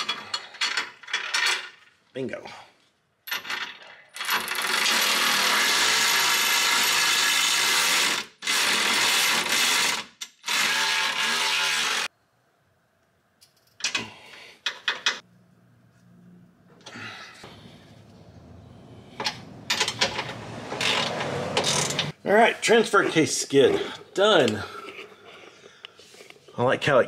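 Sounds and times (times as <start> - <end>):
cordless electric ratchet running: 4.4 - 12.1.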